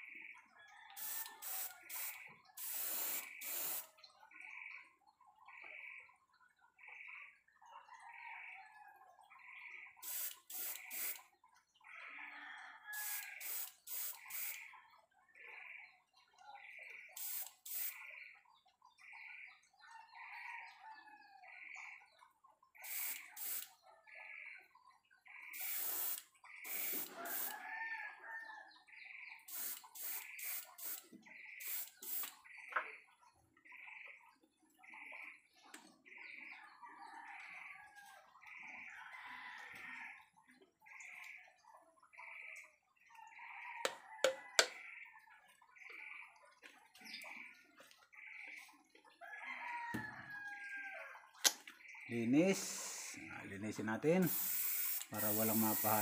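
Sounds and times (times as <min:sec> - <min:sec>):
airbrush spraying in hissing bursts: 0:01.0 - 0:03.8, 0:10.0 - 0:11.2, 0:13.0 - 0:14.6, 0:17.2 - 0:17.9, 0:22.8 - 0:23.7, 0:25.6 - 0:27.5, 0:29.5 - 0:31.0, 0:31.6 - 0:32.3, 0:54.2 - 0:56.0
chickens clucking: 0:43.2 - 0:45.4.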